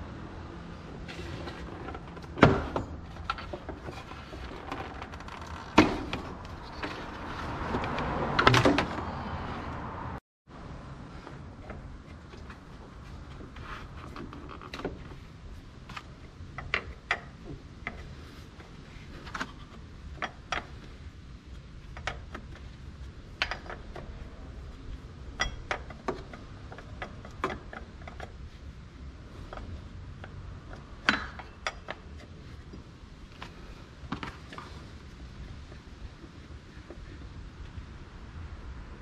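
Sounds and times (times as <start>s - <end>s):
hand tools tapping on metal: 29.5s - 32.3s.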